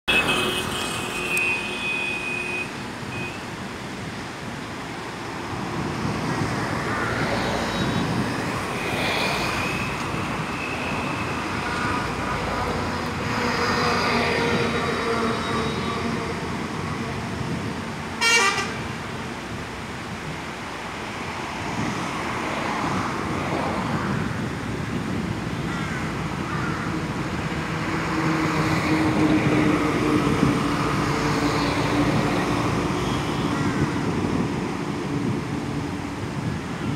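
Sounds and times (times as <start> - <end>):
car horn toots: 0.1 - 3.4, 18.2 - 18.8
vehicles passing: 0.1 - 36.9.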